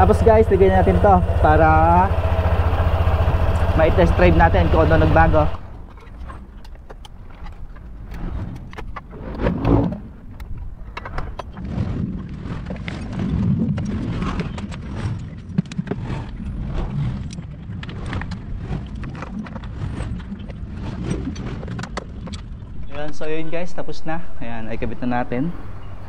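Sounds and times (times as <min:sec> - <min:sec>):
low rumble: 0:00.0 - 0:06.9, 0:22.6 - 0:26.0.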